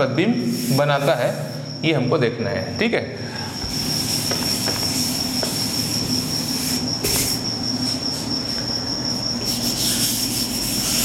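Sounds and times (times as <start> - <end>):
duster wiping chalkboard: 0.0 - 1.6, 3.5 - 8.3, 9.4 - 11.0
high-pitched whine: 0.0 - 11.0.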